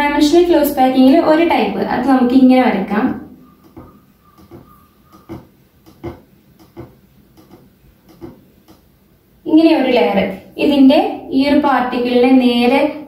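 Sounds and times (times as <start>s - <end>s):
marker tip squeaking: 3.5s - 6.9s
marker tip tapping on whiteboard: 3.7s - 8.4s.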